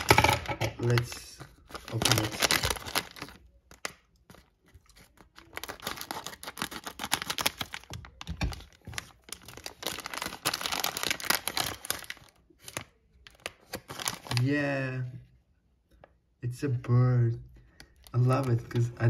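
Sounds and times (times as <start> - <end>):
foil bag crinkling and tearing: 0.8 - 14.7.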